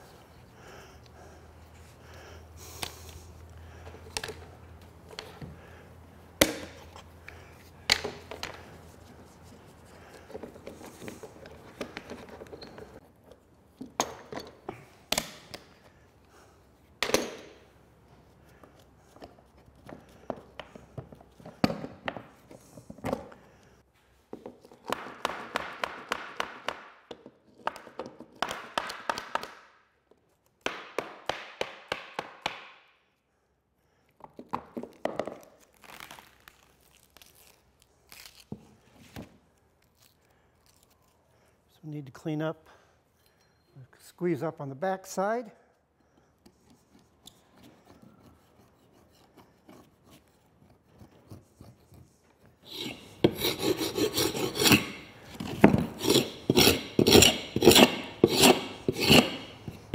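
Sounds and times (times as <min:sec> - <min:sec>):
scraping glue off wood: 0:46.6 - 0:59.9.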